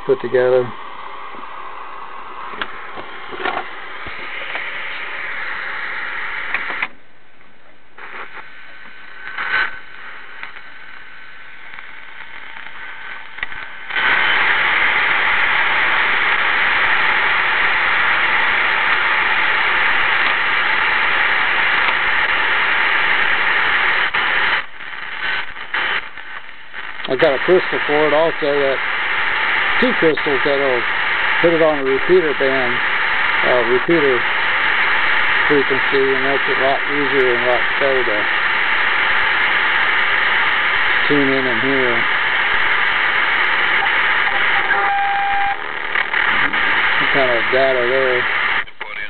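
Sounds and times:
radio static hiss: 0.0s - 49.0s
clicks: 2.4s - 4.7s.

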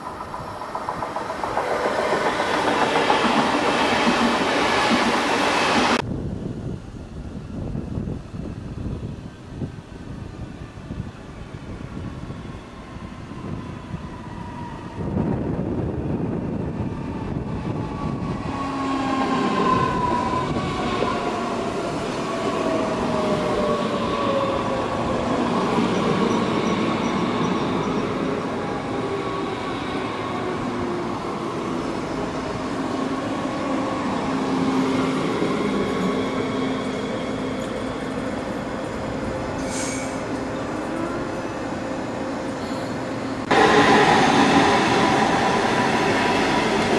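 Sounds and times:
brief hiss: 39.6s - 40.3s.

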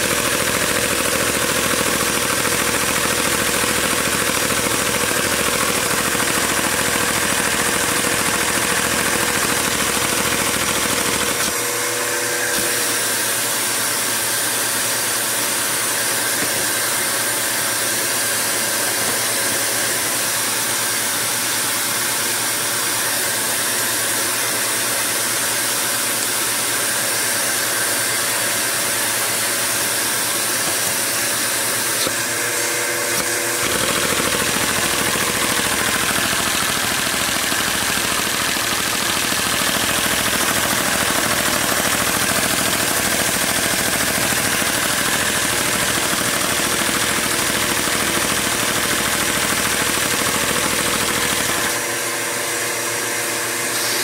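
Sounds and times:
toy engine mechanical clatter: 0.0s - 11.6s, 33.2s - 51.8s.

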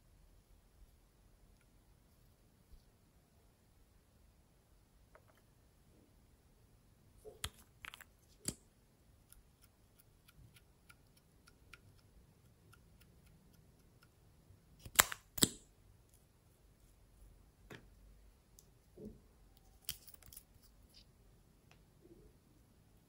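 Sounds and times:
soft ticks of wand dabbing: 9.2s - 14.2s.

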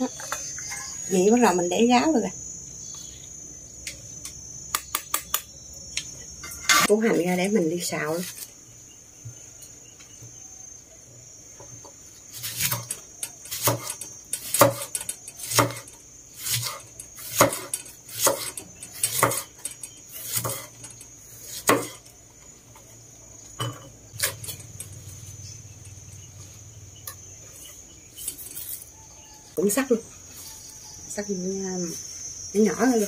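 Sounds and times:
cleaver chopping on wooden board: 13.6s - 13.9s, 14.5s - 14.9s, 15.5s - 15.8s, 17.3s - 18.5s, 19.1s - 19.4s, 21.6s - 22.0s.

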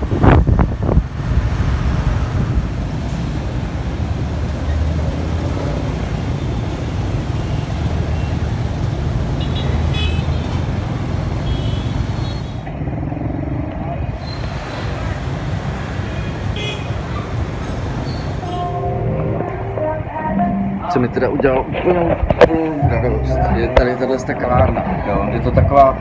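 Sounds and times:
wind on microphone: 0.0s - 4.1s.

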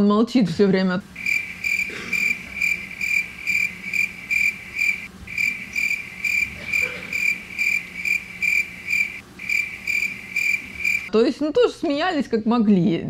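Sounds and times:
cricket chirping: 1.1s - 11.1s.

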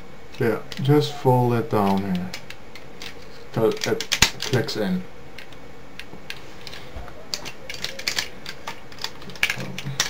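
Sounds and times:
toy parts clicking and knocking: 0.3s - 1.0s, 1.8s - 4.8s, 5.4s - 10.0s.

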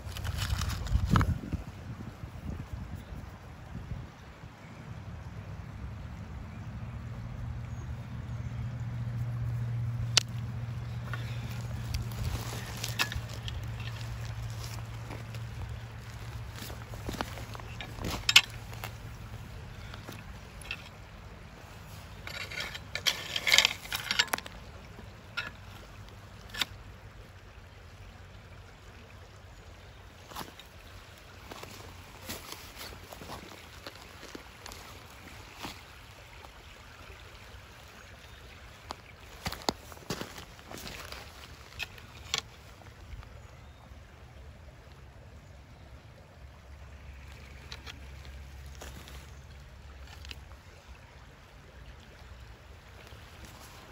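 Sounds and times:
low steady rumble: 4.9s - 30.1s
footsteps on gravel: 10.2s - 20.9s, 31.4s - 35.0s, 39.3s - 42.3s.

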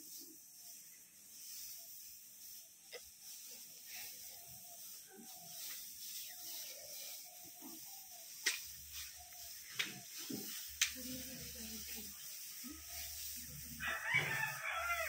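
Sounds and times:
straw rustling underfoot: 0.0s - 15.0s.

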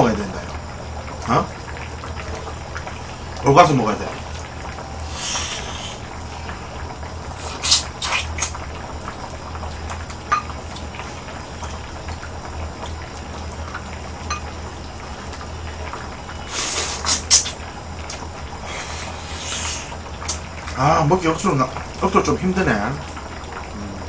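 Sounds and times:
stew simmering in a pot: 0.0s - 24.0s
slurping and sucking: 5.0s - 6.6s, 7.3s - 8.6s, 16.4s - 17.6s, 18.6s - 20.4s.

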